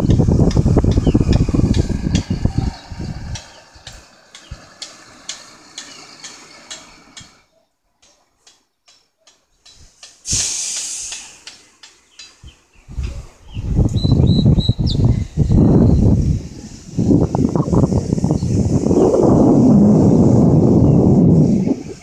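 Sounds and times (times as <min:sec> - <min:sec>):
wind buffeting microphone: 0:00.0 - 0:05.2, 0:12.4 - 0:22.0
brief hiss: 0:09.8 - 0:11.7.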